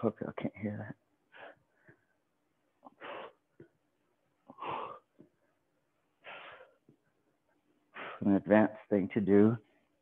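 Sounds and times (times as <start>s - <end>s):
man breathing forcefully: 4.5s - 5.1s, 6.2s - 6.8s.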